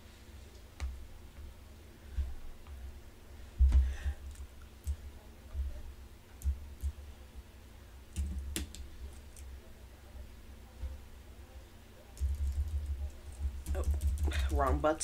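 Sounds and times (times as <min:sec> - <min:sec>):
fingers tapping on touchscreen: 0:08.2 - 0:08.8.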